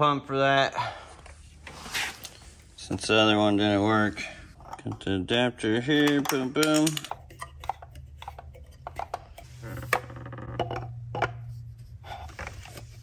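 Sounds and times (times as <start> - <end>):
plastic and brass fittings clicking: 6.0 - 9.5.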